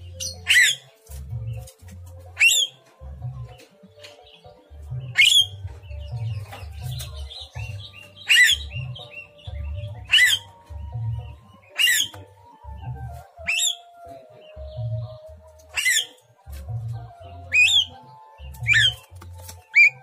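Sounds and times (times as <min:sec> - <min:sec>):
soft bird chirps: 0:17.4 - 0:20.0.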